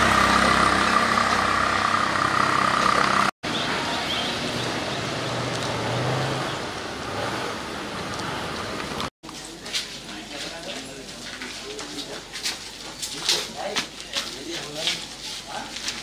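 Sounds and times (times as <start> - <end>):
vehicle engine running: 0.0 - 3.4
road noise: 0.0 - 16.0.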